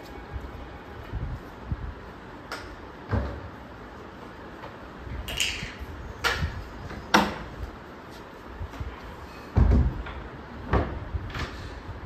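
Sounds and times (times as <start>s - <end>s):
plastic toys clattering on tiles: 5.3s - 5.8s.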